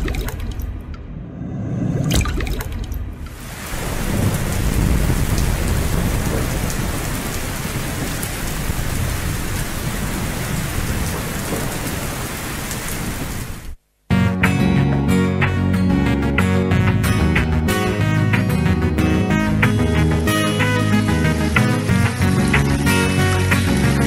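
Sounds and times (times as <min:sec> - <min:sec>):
thunder rumble: 0:01.0 - 0:13.7
heavy rain: 0:03.2 - 0:13.8, 0:19.1 - 0:24.0
guitar music: 0:14.1 - 0:24.0.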